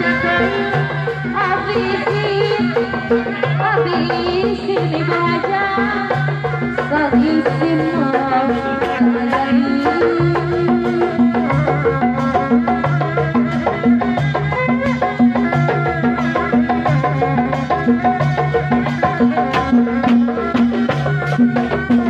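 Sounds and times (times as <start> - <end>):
drums steady rhythm: 0.0 - 22.0.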